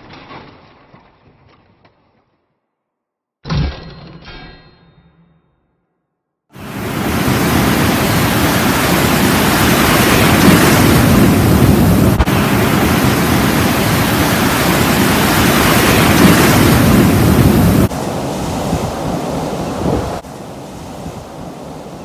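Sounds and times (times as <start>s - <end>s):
ocean surf breaking: 6.6s - 22.0s.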